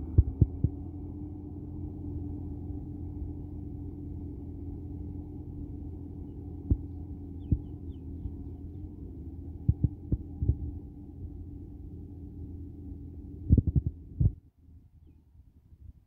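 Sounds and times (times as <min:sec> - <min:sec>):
distant tractor engine running: 0:00.0 - 0:14.8
sharp low thumps: 0:00.1 - 0:00.8, 0:09.6 - 0:10.7, 0:13.5 - 0:14.4.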